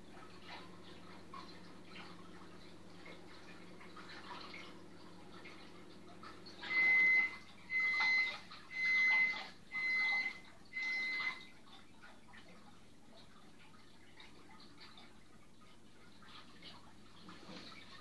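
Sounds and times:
trickle of aquarium water: 0:00.0 - 0:18.0
electronic beeps: 0:06.7 - 0:11.4.

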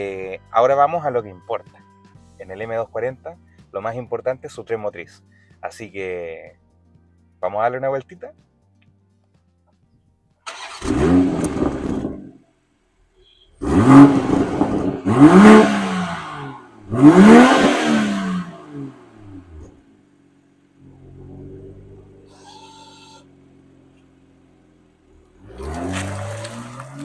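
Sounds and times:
car engine idling: 0:10.4 - 0:27.0
car engine revving: 0:10.5 - 0:12.5, 0:13.2 - 0:22.4, 0:23.2 - 0:27.0.

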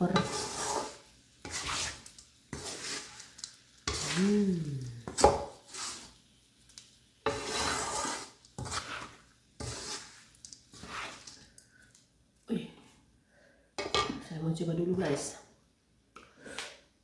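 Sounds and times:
utensil scraping in a pan: 0:00.0 - 0:11.6.

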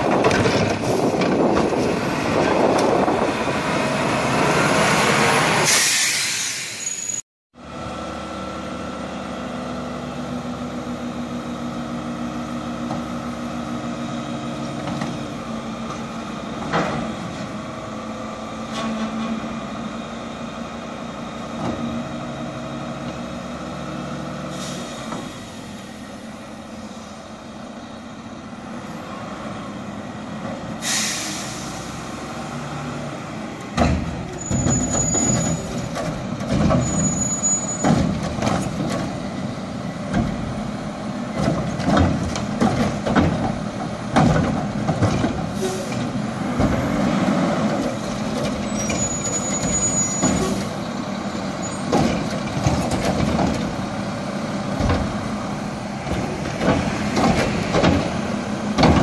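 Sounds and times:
air brake hiss: 0:05.7 - 0:07.2, 0:24.5 - 0:25.8, 0:30.8 - 0:32.0, 0:45.6 - 0:46.0
metal clanks and bangs: 0:33.7 - 0:39.2, 0:41.3 - 0:47.0, 0:56.0 - 0:59.0.

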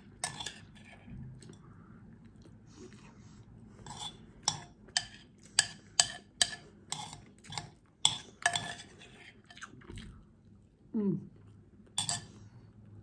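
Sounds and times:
metal spoon clinking on bowl: 0:03.9 - 0:08.9, 0:12.0 - 0:12.4.

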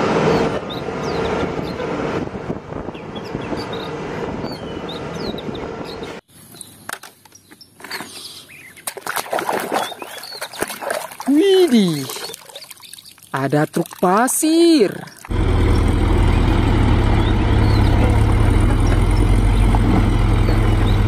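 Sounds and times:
birds chirping: 0:00.2 - 0:01.9, 0:02.8 - 0:21.0
water splashing and knocking: 0:08.8 - 0:15.3
diesel truck engine running: 0:15.3 - 0:21.0.

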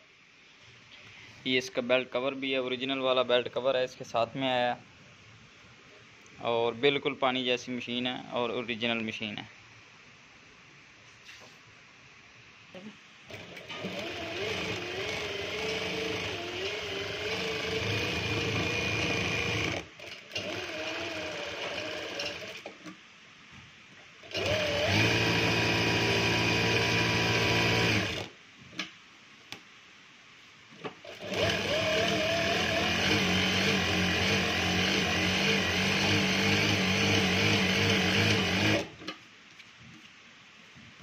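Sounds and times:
sewing machine stitching fabric: 0:13.3 - 0:23.0, 0:24.2 - 0:28.3, 0:30.9 - 0:39.2.

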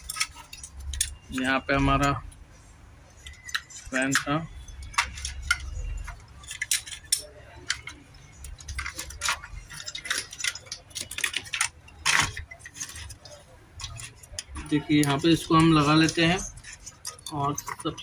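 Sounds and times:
clicks and clinks of plastic and metal: 0:00.0 - 0:02.4, 0:03.1 - 0:18.0.

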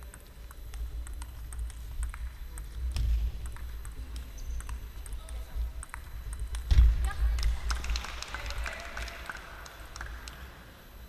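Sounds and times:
table tennis ball ticking: 0:00.0 - 0:07.9
low hum: 0:00.0 - 0:11.0.

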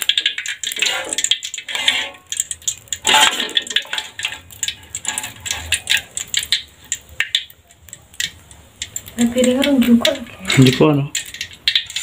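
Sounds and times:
oil sizzling: 0:00.0 - 0:12.0
metal spatula scraping a wok: 0:00.4 - 0:06.0.

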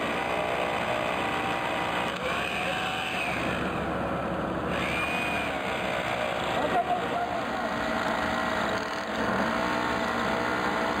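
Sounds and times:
hammer drill boring into stone: 0:04.7 - 0:06.4.

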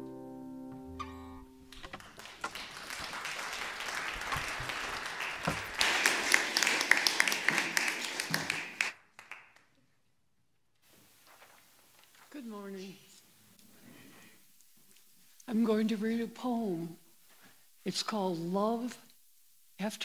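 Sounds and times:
audience clapping: 0:01.7 - 0:09.8.

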